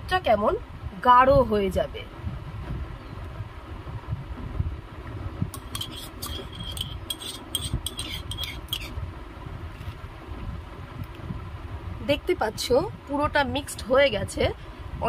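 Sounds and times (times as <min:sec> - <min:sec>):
steady low rumble: 0:00.0 - 0:15.0
metal spoon stirring milk: 0:05.6 - 0:08.9
spoon clinking on glass bowl: 0:05.6 - 0:08.9.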